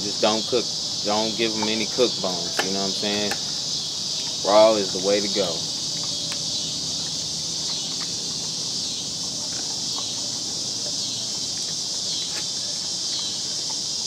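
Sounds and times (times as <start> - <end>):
insects chorus: 0.0 - 14.0.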